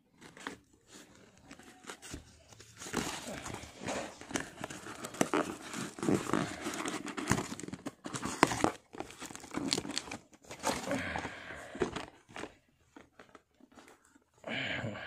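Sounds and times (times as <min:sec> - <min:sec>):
cardboard flaps rustling and scraping: 0:00.2 - 0:11.2.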